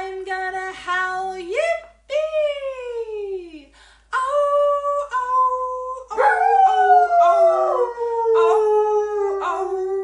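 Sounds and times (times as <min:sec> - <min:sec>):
dog howling: 0:06.1 - 0:10.0.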